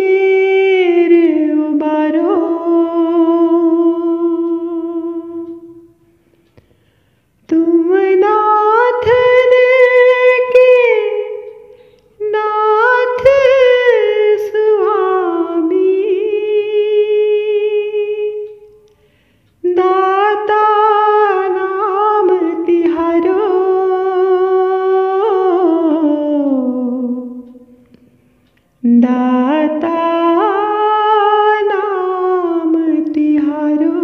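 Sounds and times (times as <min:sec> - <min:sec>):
woman singing unaccompanied: 0:00.0 - 0:06.1, 0:07.5 - 0:18.9, 0:19.6 - 0:28.0, 0:28.8 - 0:34.0.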